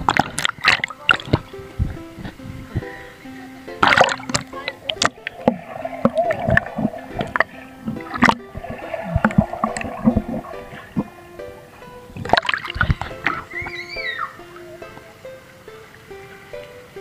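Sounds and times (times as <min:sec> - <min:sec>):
background music: 0:00.0 - 0:17.0
pool water splashing and gurgling: 0:00.0 - 0:17.0.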